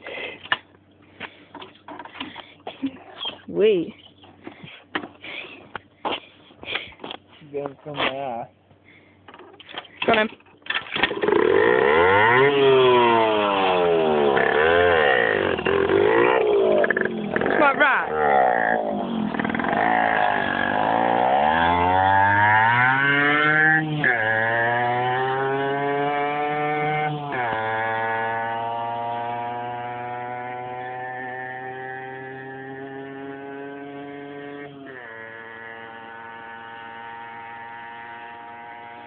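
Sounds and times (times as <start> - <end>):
two-stroke motorcycle accelerating: 10.0 - 39.0.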